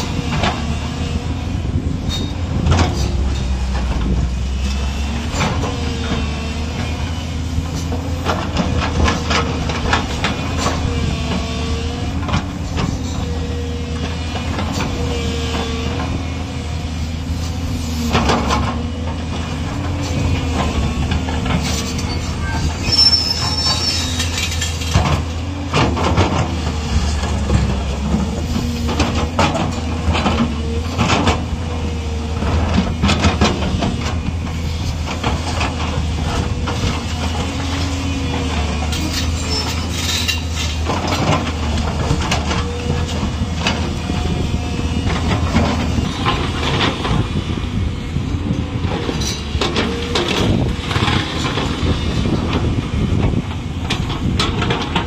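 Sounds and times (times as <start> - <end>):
excavator diesel engine running: 0.0 - 55.0
steel bucket scraping rock: 21.6 - 25.0, 38.7 - 41.6.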